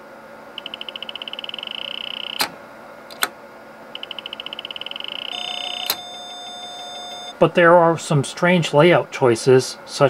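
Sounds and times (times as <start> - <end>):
high electronic beeps speeding up: 0.6 - 2.4, 4.0 - 7.4
lower steady beep: 0.6 - 2.5, 4.0 - 7.4
keyboard key click: 2.4 - 3.3.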